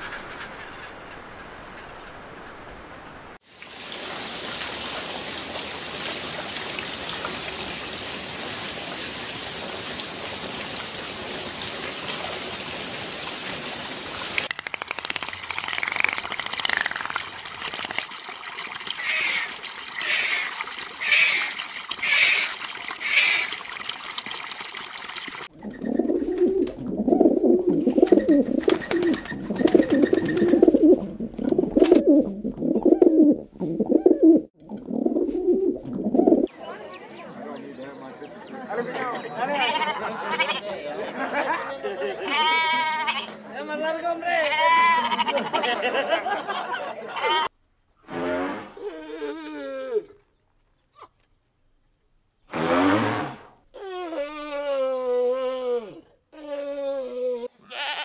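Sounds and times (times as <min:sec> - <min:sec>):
falling water hiss: 0:02.4 - 0:25.5
low cooing calls: 0:25.5 - 0:36.6
bird chirping: 0:25.6 - 0:26.4, 0:28.0 - 0:30.8.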